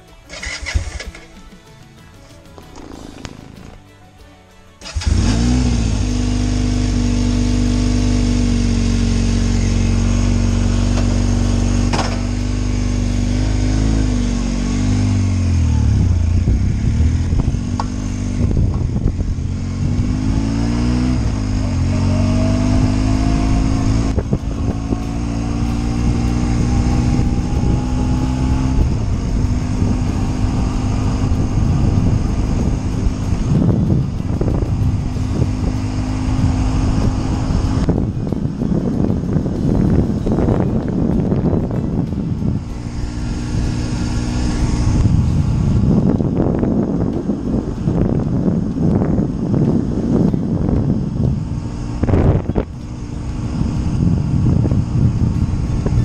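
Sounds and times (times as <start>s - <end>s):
motorcycle engine idling and revving: 0.0s - 4.0s, 4.8s - 56.0s.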